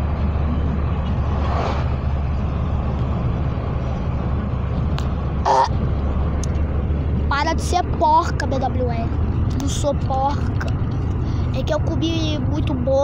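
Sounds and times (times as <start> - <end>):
car cabin rumble: 0.0 - 13.0
person burping: 5.4 - 5.8.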